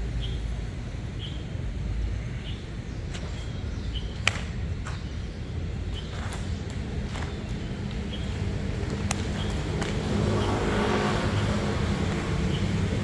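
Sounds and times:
low outdoor rumble: 0:00.0 - 0:13.0
sharp crack: 0:04.2 - 0:04.6.

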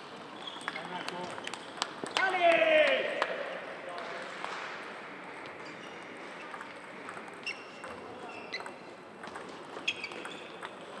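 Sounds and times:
table tennis ball clicks: 0:00.6 - 0:02.2, 0:06.5 - 0:11.0.

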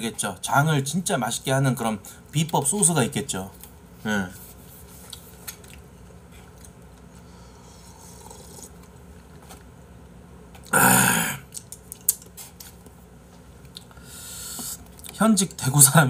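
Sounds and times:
faint chewing: 0:04.9 - 0:09.7.

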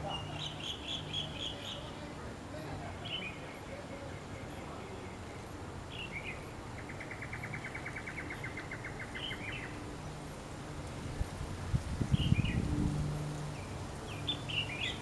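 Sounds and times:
bird trill: 0:00.0 - 0:02.0, 0:05.9 - 0:09.8, 0:13.6 - 0:15.0
small bird chirps: 0:13.6 - 0:15.0.

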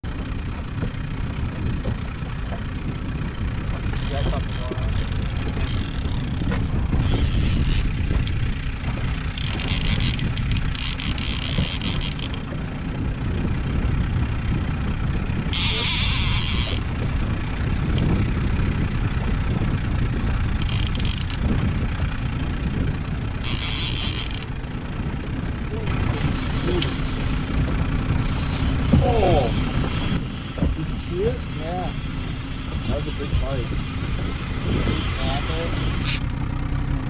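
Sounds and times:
outboard motor rumbling: 0:00.0 - 0:37.0.

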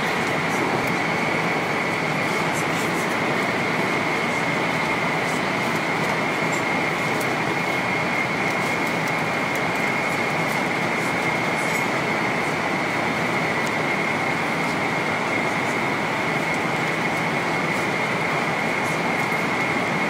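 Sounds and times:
airplane cabin noise: 0:00.0 - 0:20.0
steady high whine: 0:00.0 - 0:20.0.

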